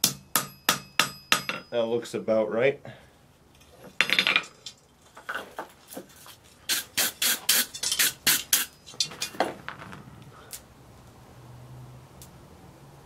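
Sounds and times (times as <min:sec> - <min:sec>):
wire brush scraping metal: 0:06.1 - 0:09.4.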